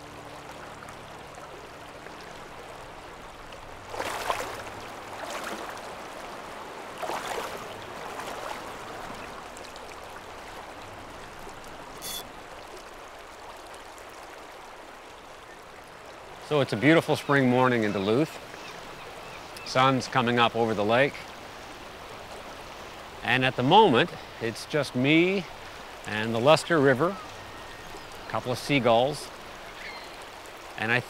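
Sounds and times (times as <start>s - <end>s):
splashes of wading: 0.0s - 23.3s, 25.4s - 30.8s
high chirp: 12.0s - 12.2s.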